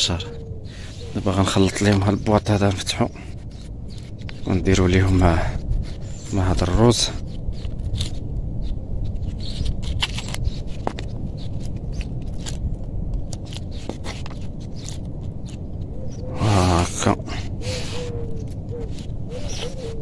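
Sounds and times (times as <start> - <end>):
low rumble: 3.1 - 13.5.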